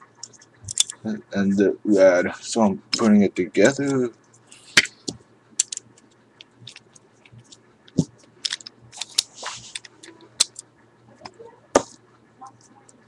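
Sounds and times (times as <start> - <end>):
plastic parts clicking together: 0.2 - 1.0, 4.8 - 10.7
rustle of handling: 8.9 - 10.2.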